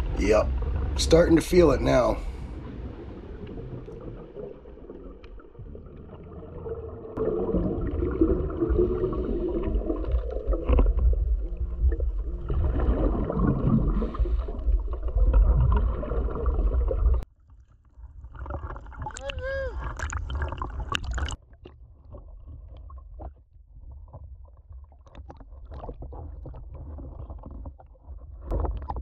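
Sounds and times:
scuba exhaust bubbles gurgling: 0.0s - 17.2s.

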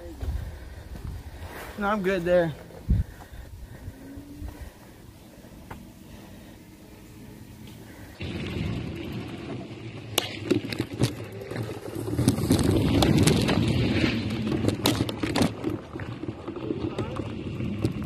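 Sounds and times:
wind on microphone: 2.8s - 4.8s
bike tyres rumbling on dirt: 7.4s - 18.0s
bike clattering over bumps: 8.2s - 18.0s.

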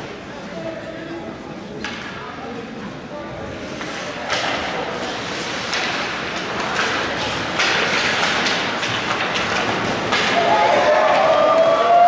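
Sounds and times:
rink background noise: 0.0s - 12.0s
skates scraping on ice: 3.5s - 11.9s.

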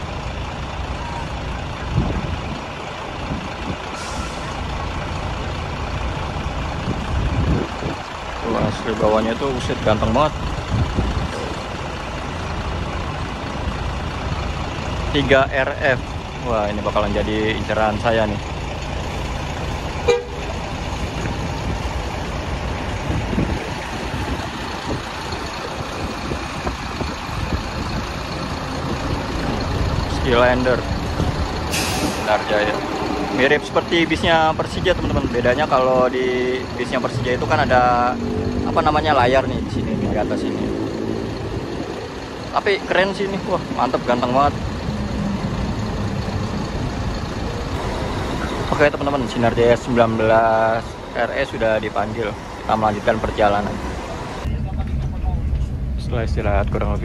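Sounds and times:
bus engine running: 0.0s - 57.0s
air brakes hissing: 3.9s - 4.6s, 31.6s - 32.5s.

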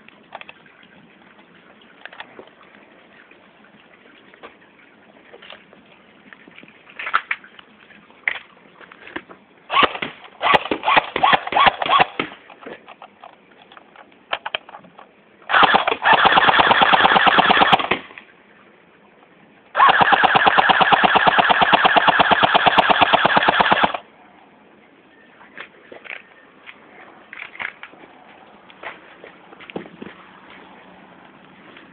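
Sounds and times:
airsoft gun firing bursts: 9.7s - 12.4s, 15.5s - 18.0s, 19.8s - 24.0s.

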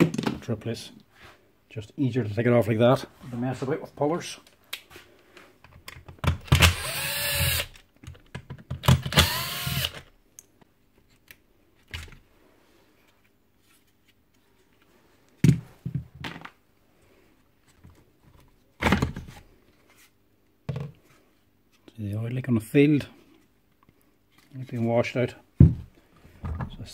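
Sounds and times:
cordless drill spinning: 6.4s - 7.8s, 9.0s - 10.1s.

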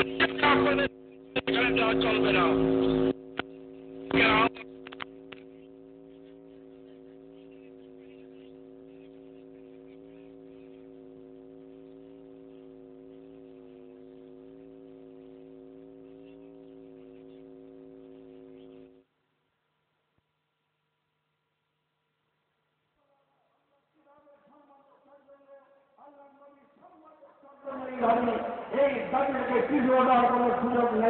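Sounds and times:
electrical mains hum: 0.0s - 31.0s
clicks: 2.9s - 5.5s.

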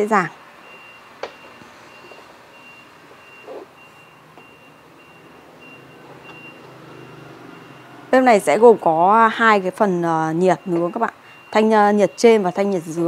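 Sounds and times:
high electronic beeping: 0.7s - 8.0s.

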